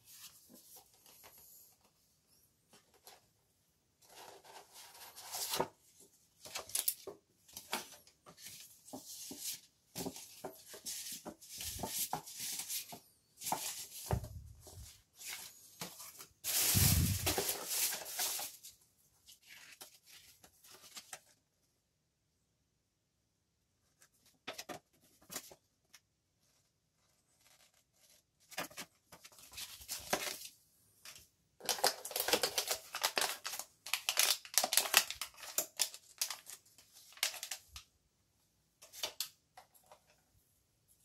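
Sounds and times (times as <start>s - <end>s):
paper and plastic rustling: 4.0s - 21.4s, 27.2s - 30.5s, 31.1s - 37.8s.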